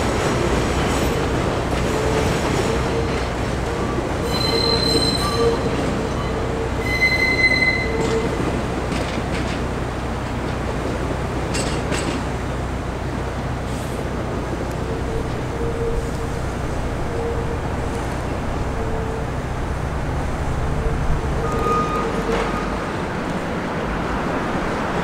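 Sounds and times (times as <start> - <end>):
train rumbling: 0.0 - 25.0
wheel squeal: 4.2 - 8.4, 21.2 - 22.8.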